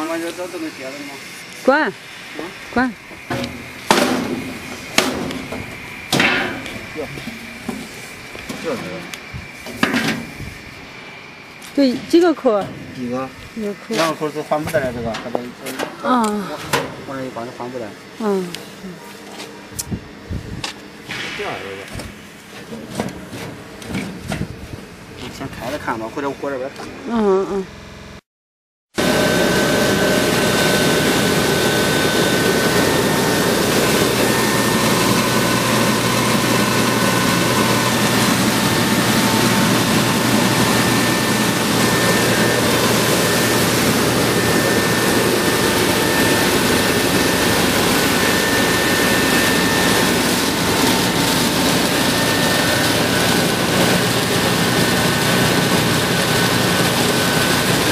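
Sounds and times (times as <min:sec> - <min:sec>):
milling machine grinding: 0:29.0 - 0:57.9.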